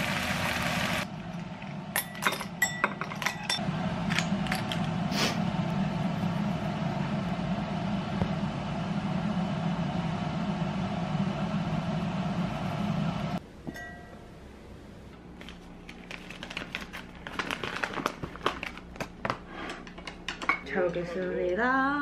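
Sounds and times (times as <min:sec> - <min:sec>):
kitchen appliance humming: 0:00.0 - 0:14.2
plastic packet crinkling: 0:15.4 - 0:19.3.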